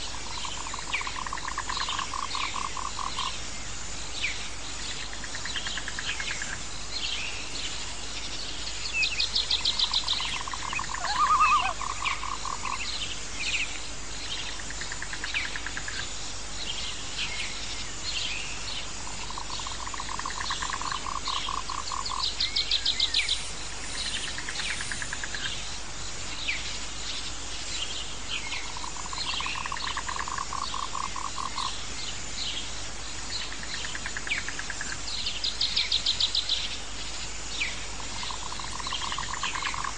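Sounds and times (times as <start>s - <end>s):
steady hiss: 0.0s - 39.9s
low pulsed animal trill: 10.5s - 12.4s
short falling chirps: 11.0s - 11.8s.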